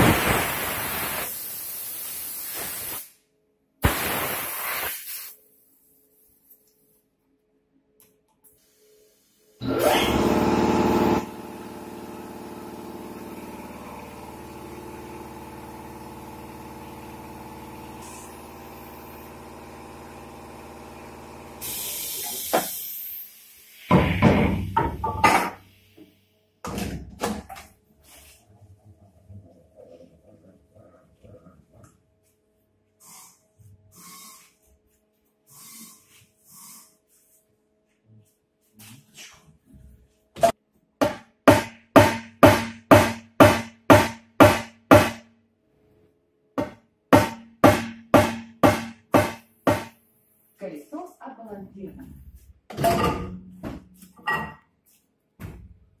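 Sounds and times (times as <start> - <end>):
compressed air hissing: 0.0 - 3.2, 3.8 - 5.4, 21.6 - 24.2, 33.0 - 34.6, 35.5 - 37.0.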